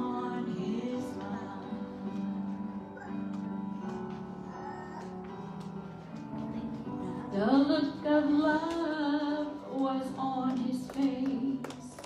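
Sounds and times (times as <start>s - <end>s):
woman singing into microphone: 0.0s - 3.4s, 7.0s - 12.0s.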